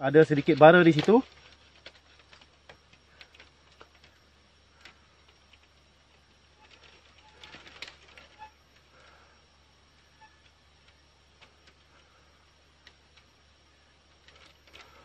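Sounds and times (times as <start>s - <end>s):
wood and bamboo clicking: 0.2s - 9.2s, 14.0s - 15.0s.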